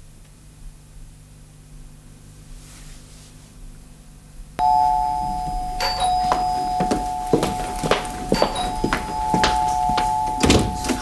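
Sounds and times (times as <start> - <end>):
doorbell buzzing: 4.6 - 11.0
footsteps hurrying: 5.0 - 11.0.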